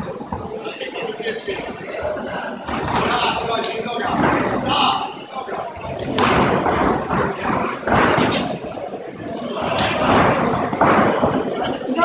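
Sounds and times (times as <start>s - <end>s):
kicks and punches thudding: 5.8s - 8.7s.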